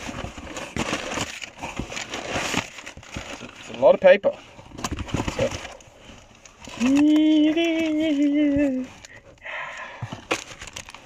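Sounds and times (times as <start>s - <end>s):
packing paper rustling: 0.0s - 11.0s.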